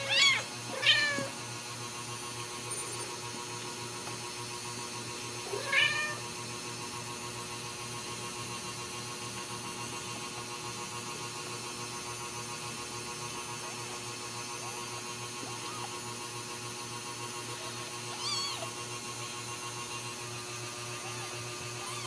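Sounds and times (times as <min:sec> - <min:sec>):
kittens squeaking: 0:00.0 - 0:01.3, 0:15.5 - 0:16.0, 0:18.0 - 0:18.8, 0:21.0 - 0:22.0
kitten mewing: 0:00.0 - 0:01.4, 0:05.4 - 0:06.3, 0:14.6 - 0:16.1, 0:17.5 - 0:18.9, 0:21.0 - 0:22.0
electrical hum: 0:00.0 - 0:22.0.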